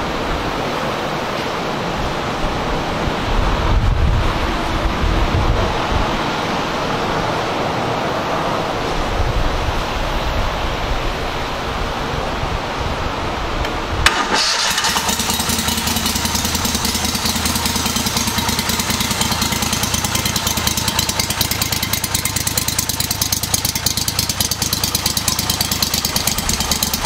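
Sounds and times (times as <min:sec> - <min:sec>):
engine starting with sharp crack: 0:14.0 - 0:18.7
boat motor idling: 0:14.0 - 0:27.0.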